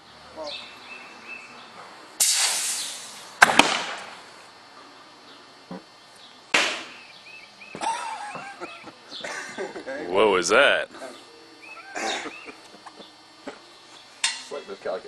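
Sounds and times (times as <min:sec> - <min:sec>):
hissing blast of released air: 0:02.2 - 0:04.0
sharp bangs: 0:02.2 - 0:04.2.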